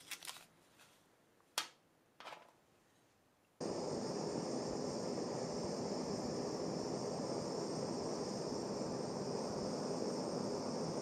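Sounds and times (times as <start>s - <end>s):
blowtorch hissing: 3.6s - 11.0s.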